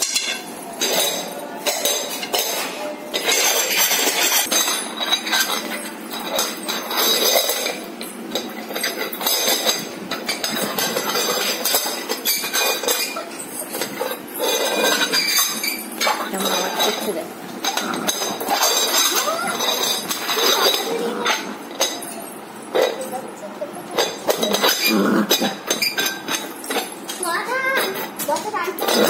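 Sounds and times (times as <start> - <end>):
steel bowl scraping on concrete: 8.6 - 23.0, 24.0 - 26.9.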